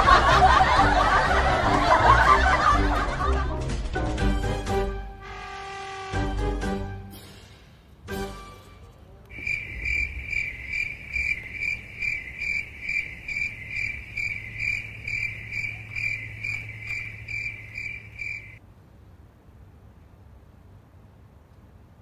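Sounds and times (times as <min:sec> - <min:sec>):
low hum: 0:08.4 - 0:18.6
cricket chirping: 0:09.3 - 0:18.6.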